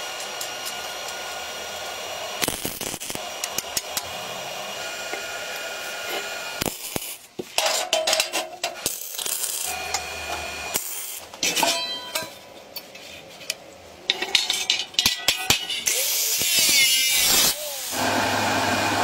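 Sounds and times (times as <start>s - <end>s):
metal parts clinking and scraping: 6.9s - 9.7s, 10.8s - 17.6s.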